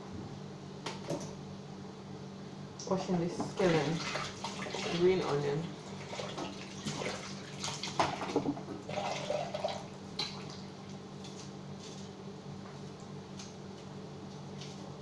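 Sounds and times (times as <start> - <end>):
steady low hum: 0.0 - 15.0
tap water splashing in sink: 6.1 - 10.6.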